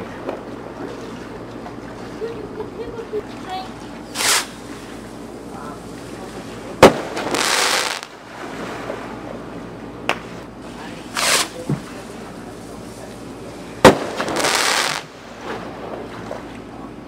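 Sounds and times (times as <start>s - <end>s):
firework shell launching rush: 4.1s - 4.6s, 6.8s - 8.2s, 11.1s - 11.6s, 13.8s - 15.1s
loud firework bang: 6.8s - 8.1s, 13.8s - 15.7s.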